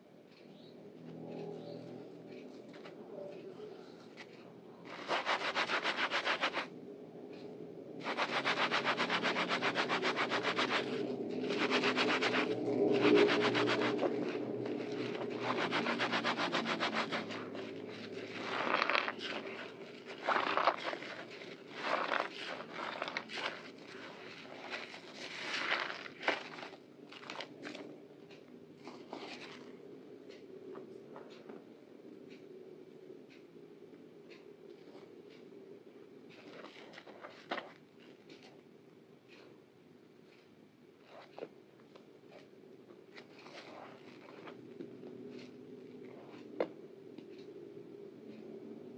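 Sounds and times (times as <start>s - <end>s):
sponge scrubbing soap: 4.9s - 6.7s, 8.0s - 27.8s, 43.2s - 44.6s
wet squishes of sponge: 4.9s - 6.7s, 7.9s - 27.9s, 43.1s - 46.7s.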